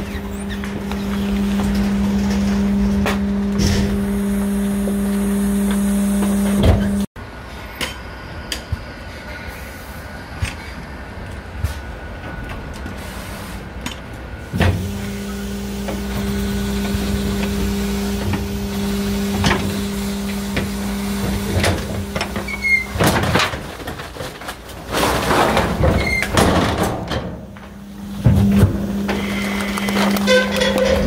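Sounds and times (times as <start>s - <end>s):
motor-driven hum: 0.0s - 7.1s, 14.6s - 23.3s, 27.5s - 31.0s
clicks and creaks: 29.2s - 31.0s.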